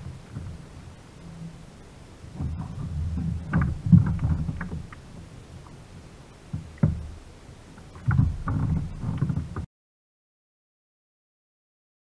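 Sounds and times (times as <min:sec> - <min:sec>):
low rumble: 0:00.0 - 0:09.6
water splashing against kayak: 0:00.0 - 0:09.7.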